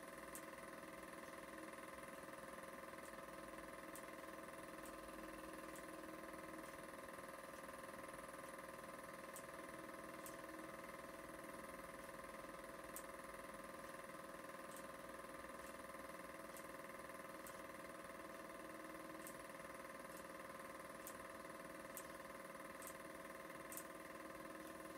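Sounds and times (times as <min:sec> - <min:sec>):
film projector whirring: 0:00.0 - 0:24.9
small ticks: 0:00.2 - 0:00.6, 0:03.0 - 0:04.2, 0:09.3 - 0:10.5, 0:12.8 - 0:13.2, 0:14.6 - 0:15.0, 0:16.5 - 0:17.7, 0:19.1 - 0:24.0.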